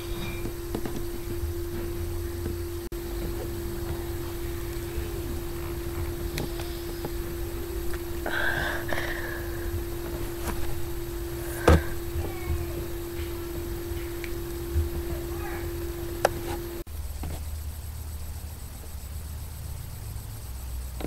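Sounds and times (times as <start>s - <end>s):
electrical hum: 0.0s - 21.0s.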